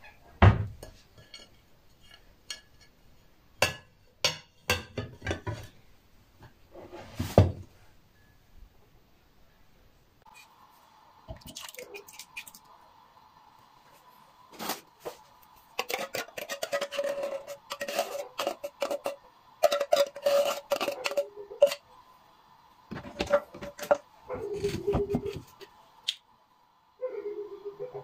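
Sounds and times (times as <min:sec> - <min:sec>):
spoon scraping inside tin can: 0:15.7 - 0:21.8, 0:23.0 - 0:25.6.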